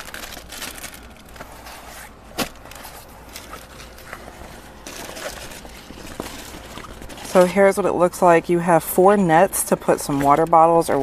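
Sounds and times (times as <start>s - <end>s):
fabric organizer handling noises: 0.0s - 8.0s.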